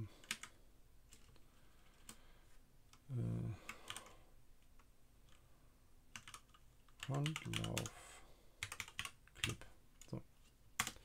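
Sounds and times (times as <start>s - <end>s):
computer keyboard keystrokes: 0.2s - 0.5s, 3.7s - 4.1s, 6.2s - 7.9s, 8.6s - 10.1s, 10.8s - 11.0s
person humming: 3.1s - 3.6s.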